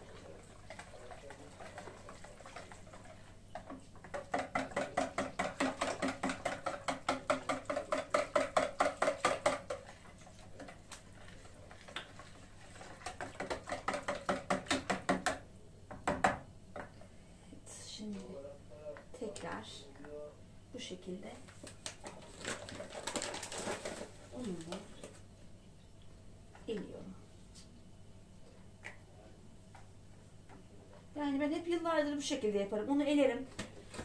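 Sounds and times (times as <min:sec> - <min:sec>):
wire whisk beating batter in a bowl: 0:00.0 - 0:15.3.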